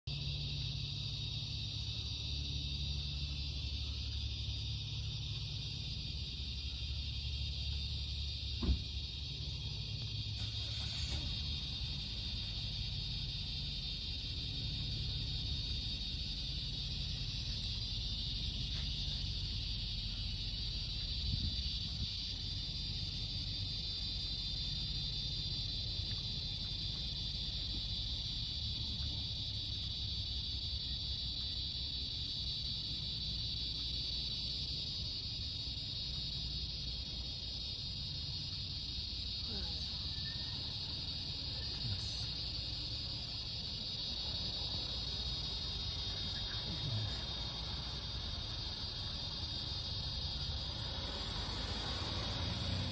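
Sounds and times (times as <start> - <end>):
insect chorus drone: 0.0 - 52.9
low steady rumble: 0.1 - 52.9.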